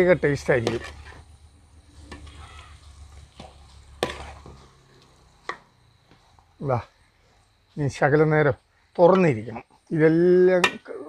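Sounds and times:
faint sizzling: 0.0 - 11.0
metal ladle scraping a pot: 0.1 - 4.8.

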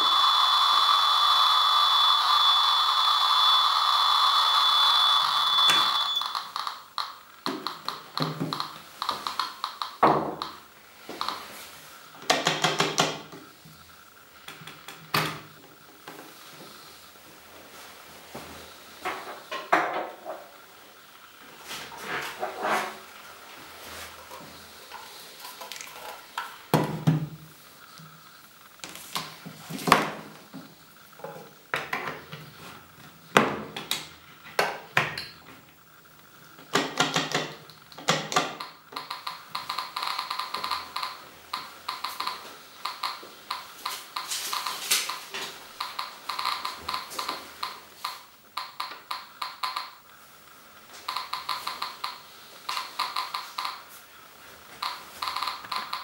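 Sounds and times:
geiger counter clicking: 0.0 - 11.5, 36.7 - 50.2, 51.0 - 54.0, 54.8 - 56.0.

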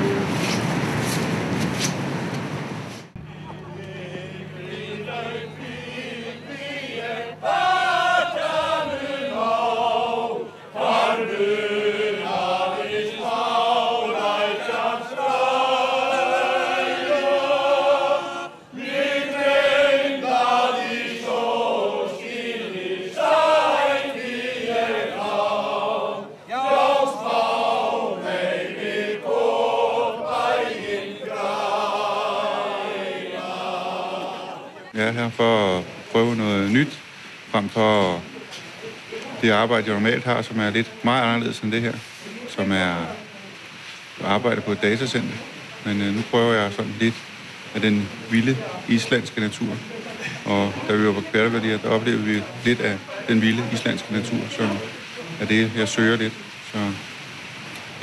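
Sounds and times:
men singing together: 3.3 - 34.9.

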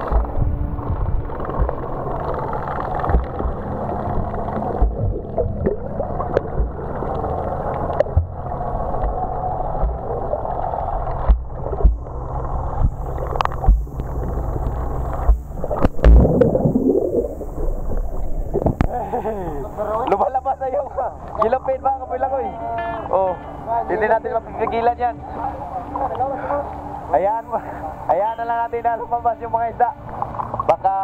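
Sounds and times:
underwater bubbling: 0.0 - 22.4, 29.8 - 30.9
boat engine hum underwater: 0.0 - 31.0.

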